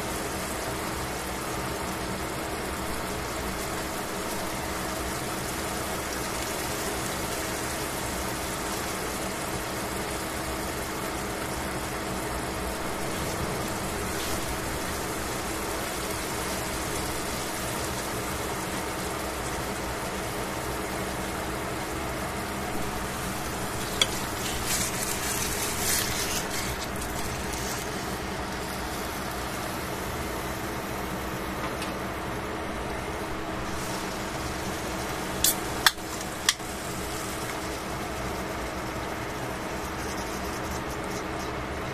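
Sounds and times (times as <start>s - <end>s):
meat sizzling in a frying pan: 0.0s - 41.9s
steady low hum: 10.8s - 41.9s.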